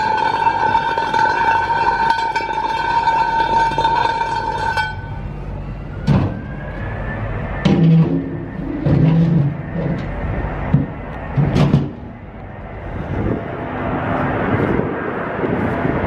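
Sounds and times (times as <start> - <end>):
steady high tone: 0.0 - 11.4
truck engine running: 0.0 - 16.0.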